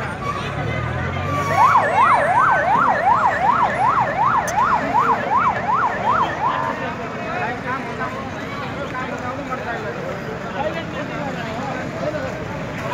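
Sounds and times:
electronic siren yelping: 1.5s - 6.6s.

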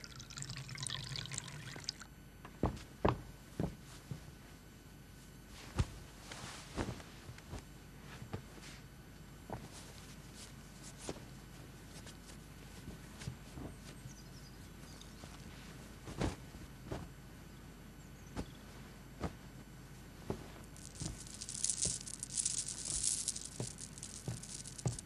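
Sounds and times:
light rustling hiss: 5.2s - 25.0s.

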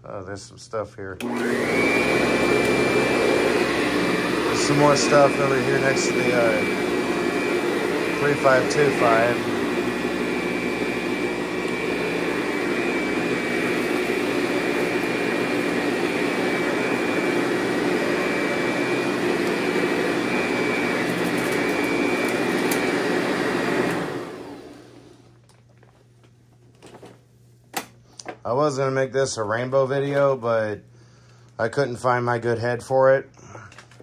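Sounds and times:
vacuum cleaner running: 1.2s - 25.4s.

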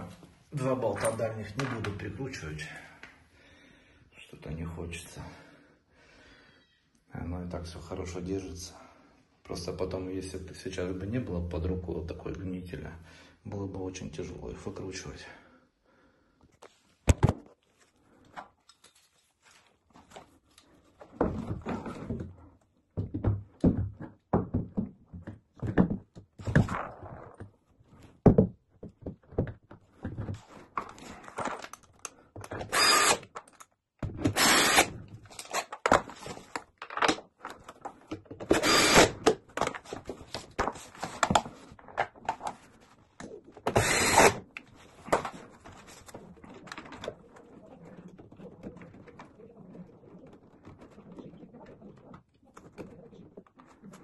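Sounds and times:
cordless drill screwing bolts: 32.6s - 33.6s, 34.3s - 35.6s, 38.5s - 39.2s, 43.7s - 44.4s.

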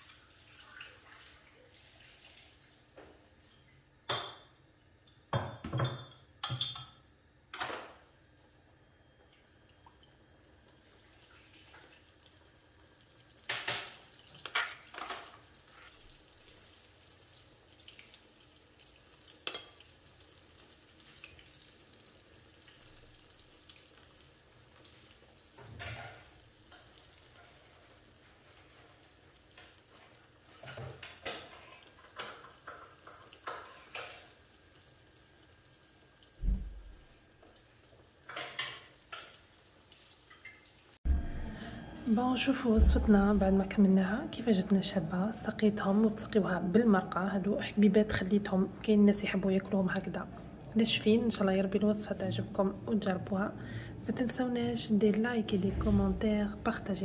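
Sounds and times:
oil sizzling in a frying pan: 0.0s - 3.4s, 9.2s - 41.0s.

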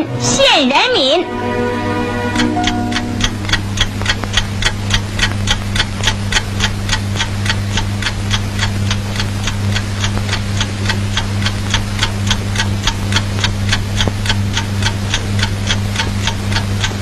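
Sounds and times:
low hum: 1.1s - 6.9s
clock ticking fast: 2.4s - 17.0s.

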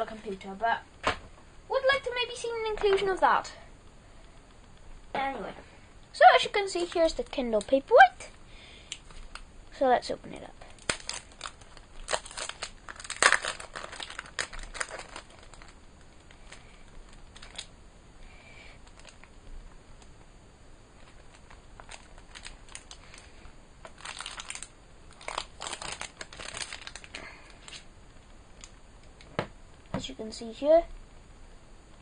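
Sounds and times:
plastic sleeve crinkling: 6.2s - 8.3s, 10.3s - 17.7s, 18.8s - 19.4s, 21.0s - 27.9s.

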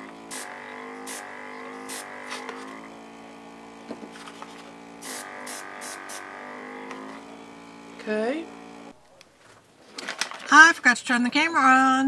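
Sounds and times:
air compressor humming: 0.0s - 9.0s
airbrush spray hisses: 0.3s - 2.8s, 4.1s - 6.4s.

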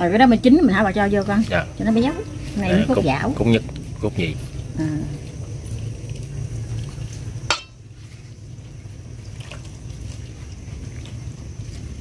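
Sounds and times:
sharp clink of a dish: 7.5s - 7.8s.

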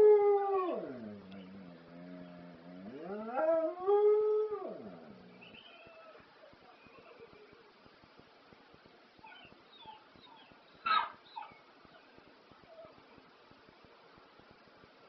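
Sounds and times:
dog howling: 2.9s - 6.2s.

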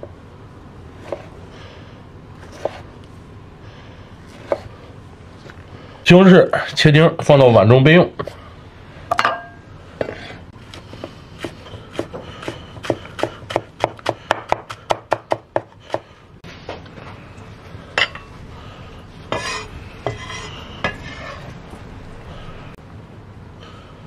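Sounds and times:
cleaver chopping on wooden board: 11.4s - 16.0s.

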